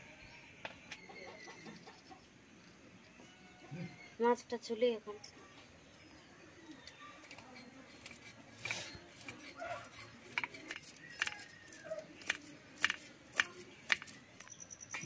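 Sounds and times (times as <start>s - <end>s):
fish scraping against blade: 7.2s - 14.1s.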